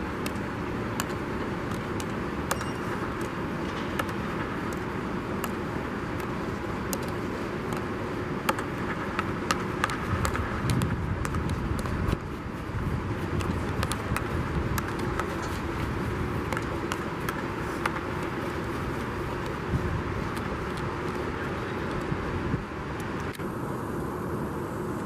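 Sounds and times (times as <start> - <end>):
background rumble and hum: 0.0 - 25.0
hockey stick tapping ball: 0.2 - 12.3, 13.2 - 15.6, 16.4 - 18.4.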